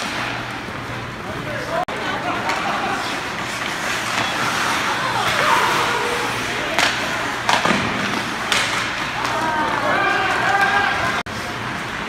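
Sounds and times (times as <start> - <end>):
skating and arena noise: 0.0 - 12.0
spectators' voices: 1.2 - 12.0
hockey stick and puck knocks: 6.8 - 9.4.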